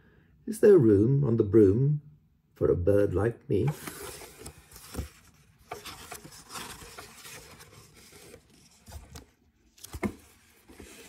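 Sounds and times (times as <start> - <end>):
paper rustling and sliding: 3.7 - 11.0
soft knocks of book set down: 8.8 - 11.0.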